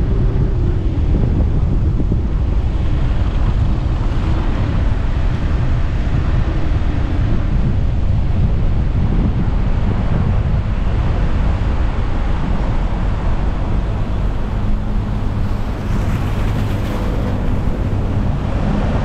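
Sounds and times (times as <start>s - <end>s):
road and engine noise: 0.0s - 19.0s
wind buffeting microphone: 0.0s - 19.0s.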